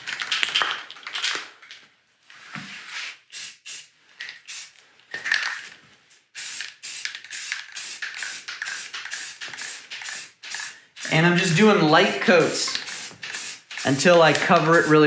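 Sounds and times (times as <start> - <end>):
aerosol can spraying: 3.3 - 4.8, 6.4 - 15.0.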